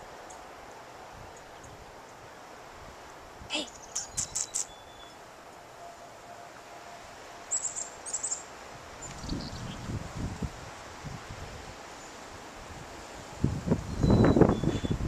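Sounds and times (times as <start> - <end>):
short high chirps: 3.6 - 5.2.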